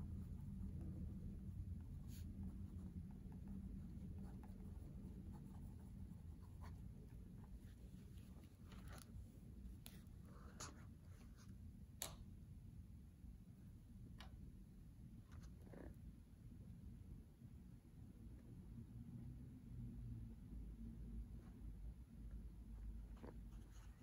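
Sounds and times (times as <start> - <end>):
pen scratching on paper: 0.0 - 7.5.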